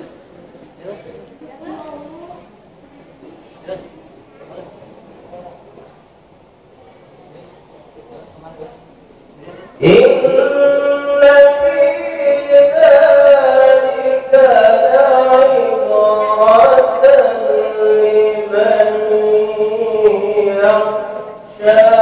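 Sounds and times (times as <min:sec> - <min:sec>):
man chanting melodically: 0:09.4 - 0:22.0.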